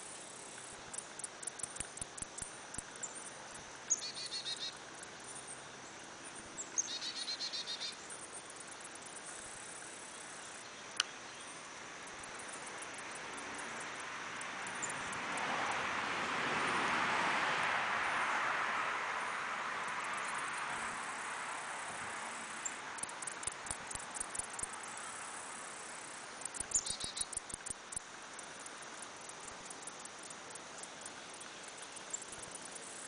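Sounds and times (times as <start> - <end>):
insects chirping: 0.0 - 33.0
short trilled calls: 3.9 - 4.8, 6.8 - 8.1, 26.3 - 28.0.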